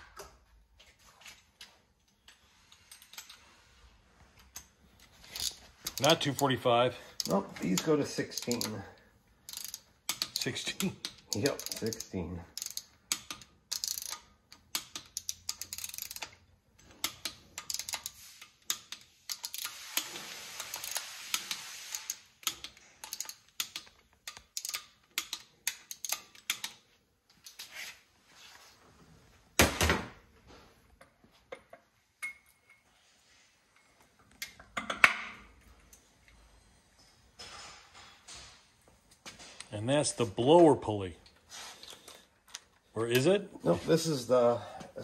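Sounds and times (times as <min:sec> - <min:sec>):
ratchet wrench clicking: 0:05.3 - 0:06.6, 0:07.2 - 0:08.9, 0:09.5 - 0:26.8.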